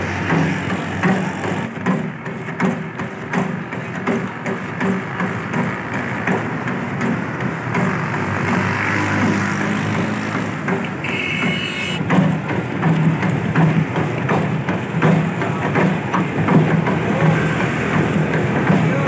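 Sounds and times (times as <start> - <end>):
grinding noise: 3.8 - 19.0.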